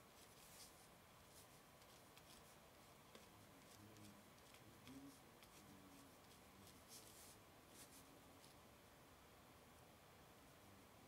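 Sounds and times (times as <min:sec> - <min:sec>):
pen scratching on paper: 0:00.2 - 0:08.6.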